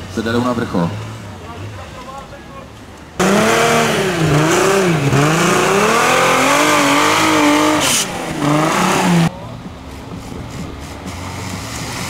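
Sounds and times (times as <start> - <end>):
engine revving hard: 3.2 - 9.3.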